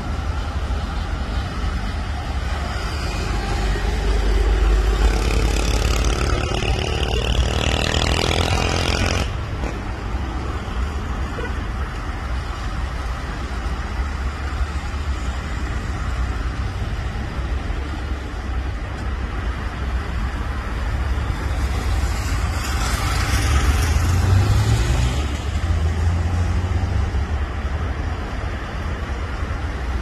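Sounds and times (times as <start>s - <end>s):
traffic rumble: 0.0s - 30.0s
vehicle passing: 21.3s - 27.2s.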